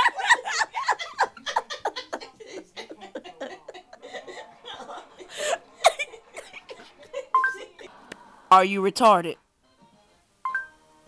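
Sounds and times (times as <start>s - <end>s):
person laughing: 0.0s - 7.9s.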